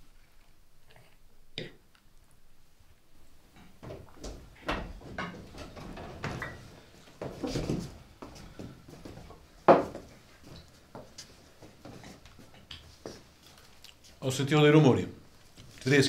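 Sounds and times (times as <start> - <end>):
door opening: 3.9 - 6.6.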